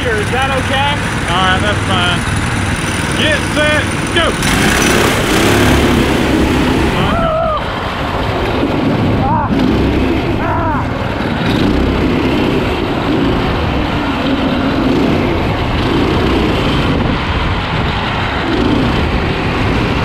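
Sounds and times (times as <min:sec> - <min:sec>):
go kart engines running: 0:00.0 - 0:20.0.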